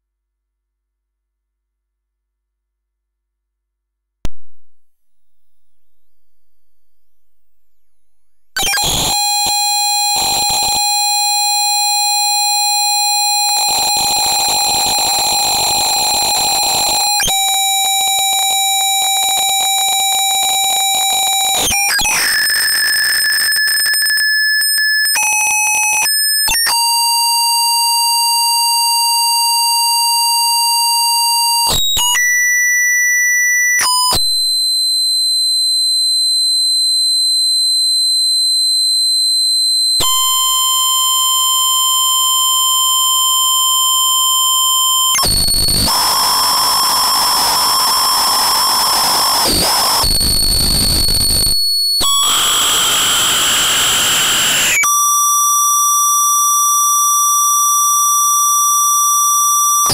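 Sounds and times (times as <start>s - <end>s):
buzzy electronic tones: 4.4s - 26.4s, 45.1s - 54.8s
pure high whistle: 4.6s - 59.9s
harsh electronic noise: 13.2s - 25.5s.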